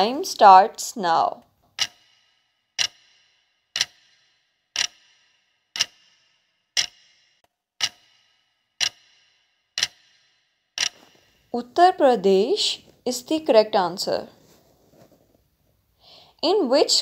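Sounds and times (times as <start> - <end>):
clock ticking: 1.2 - 13.6.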